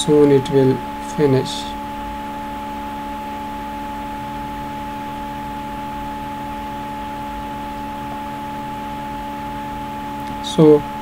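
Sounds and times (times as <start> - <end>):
steady hum and hiss: 0.0 - 11.0.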